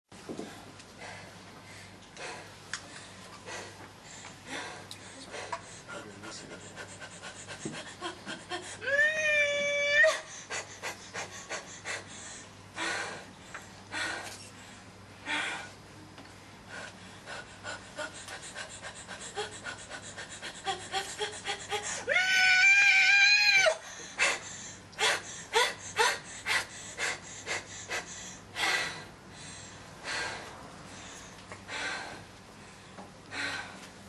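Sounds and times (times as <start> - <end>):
woman panting: 0.4 - 14.4, 15.2 - 15.8, 16.7 - 22.6, 23.6 - 33.9
woman's high cry: 8.8 - 10.3, 22.0 - 23.8.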